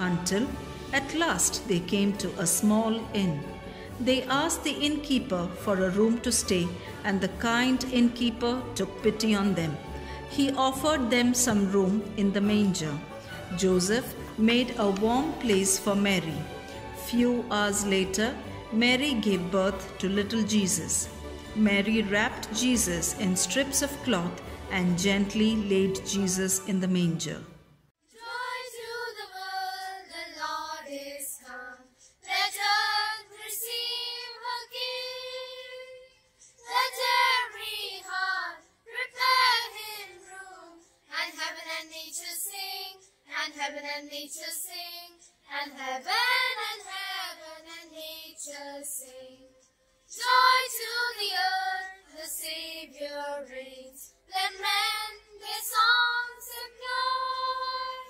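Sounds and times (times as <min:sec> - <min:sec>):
child singing: 0:28.1 - 0:58.0.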